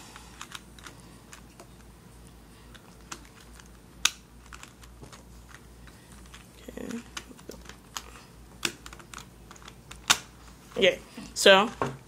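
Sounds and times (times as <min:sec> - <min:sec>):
plastic cube pieces clicking: 0:06.3 - 0:10.3.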